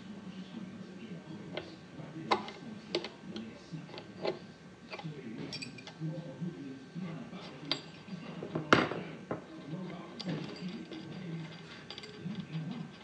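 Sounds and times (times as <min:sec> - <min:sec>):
small steel parts clinking: 0:10.2 - 0:13.0.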